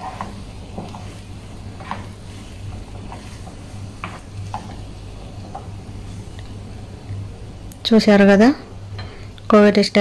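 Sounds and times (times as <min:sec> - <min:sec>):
wooden spatula scraping a pan: 0:00.0 - 0:07.0
steady low hum: 0:00.0 - 0:10.0.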